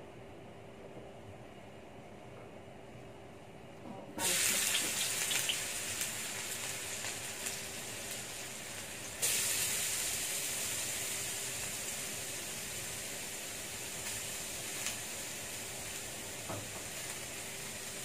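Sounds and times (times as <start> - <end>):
garlic sizzling in hot oil: 4.2 - 18.0.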